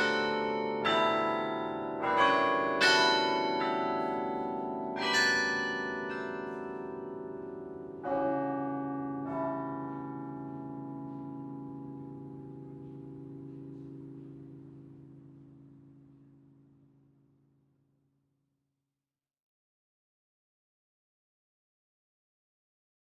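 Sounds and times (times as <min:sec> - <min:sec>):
carillon bell chords ringing: 0:00.0 - 0:16.2.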